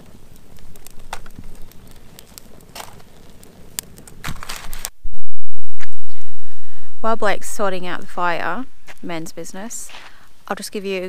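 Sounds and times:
sticks rustling: 0.0 - 5.0
campfire crackling: 0.0 - 5.1, 5.8 - 11.0.

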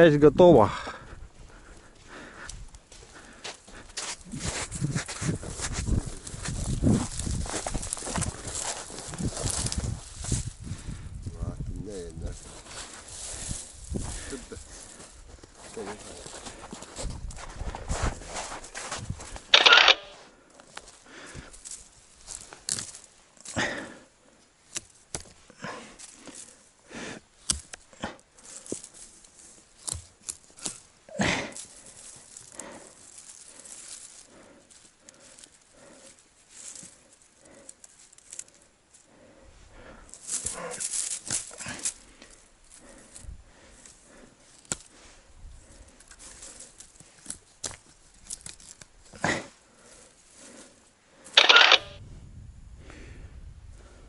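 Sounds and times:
leafy branches rustling: 4.2 - 10.8, 25.8 - 49.2
twigs snapping: 21.6 - 23.6, 27.4 - 30.9, 40.1 - 42.4, 46.0 - 49.0.

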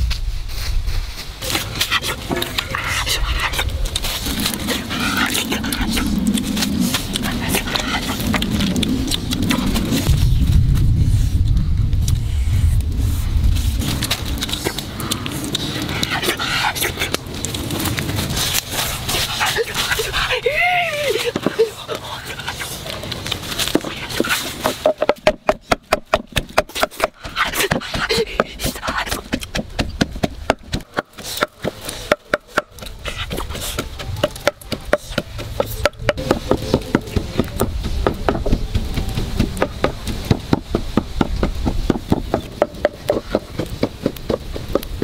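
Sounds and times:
low rumble: 0.0 - 20.4
pestle pounding in mortar: 24.6 - 32.9, 33.8 - 45.0.

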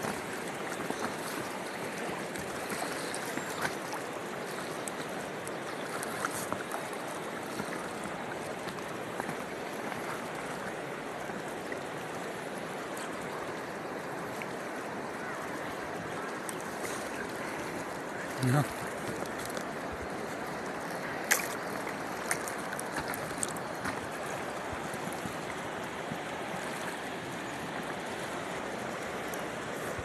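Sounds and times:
river water rushing: 0.0 - 30.0
water lapping against hull: 0.0 - 30.0
light splashes: 16.3 - 25.6.

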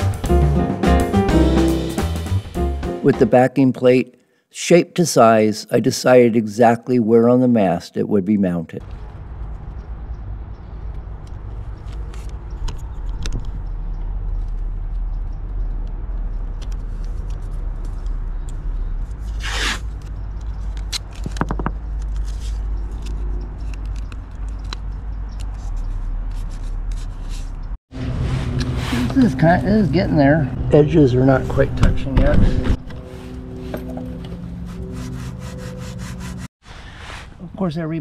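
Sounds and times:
plastic scraping on sandpaper: 19.0 - 29.3, 34.5 - 37.4.

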